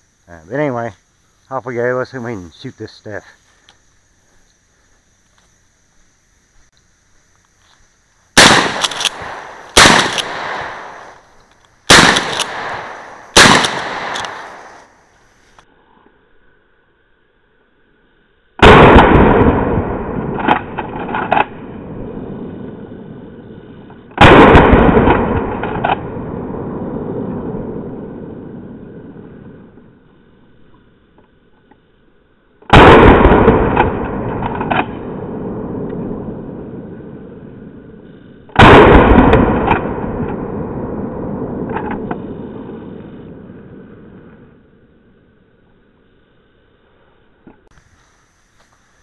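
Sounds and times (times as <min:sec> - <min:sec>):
shotgun blasts: 0:08.4 - 0:11.2, 0:11.9 - 0:14.8, 0:18.6 - 0:22.0, 0:24.1 - 0:27.8, 0:32.7 - 0:36.7, 0:38.6 - 0:43.5
shotgun pump clicks: 0:08.6 - 0:09.2, 0:09.8 - 0:10.4, 0:11.4 - 0:12.7, 0:13.4 - 0:14.5.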